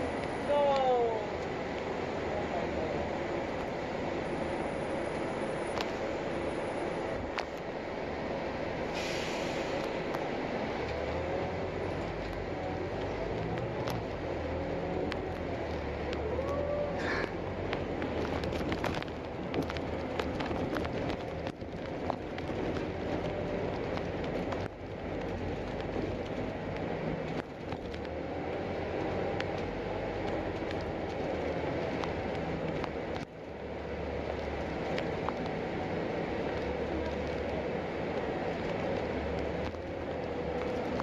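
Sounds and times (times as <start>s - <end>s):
bus engine and tyre noise: 0.0s - 41.0s
rattles and clicks in cabin: 16.0s - 28.1s.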